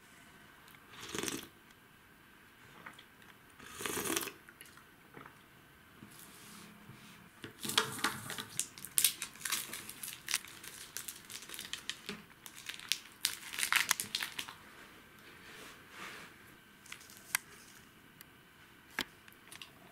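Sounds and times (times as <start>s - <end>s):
snack packaging crinkling: 7.6s - 14.6s, 16.8s - 17.9s.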